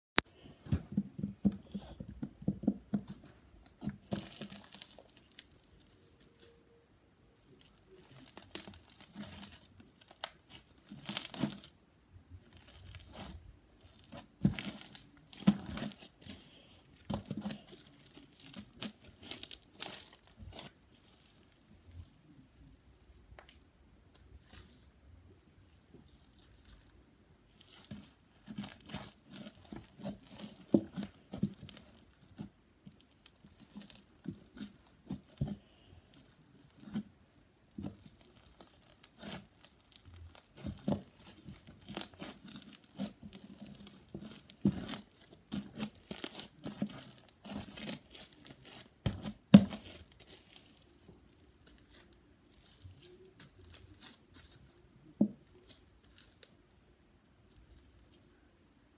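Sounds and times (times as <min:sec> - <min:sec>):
slime sticky crackles and pops: 0:37.7 - 0:50.8.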